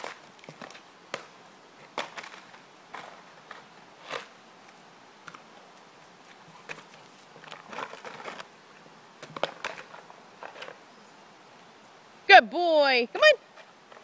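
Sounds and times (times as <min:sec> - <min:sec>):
dog bowl scraping on gravel: 0:01.9 - 0:04.4, 0:06.4 - 0:08.6.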